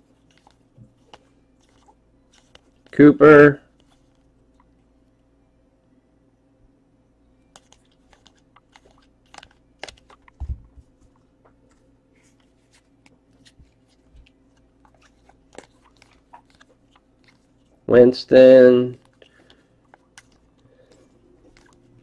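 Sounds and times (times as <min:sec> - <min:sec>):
cards flipped through by hand: 0:00.2 - 0:03.0, 0:07.5 - 0:17.8, 0:19.0 - 0:22.0.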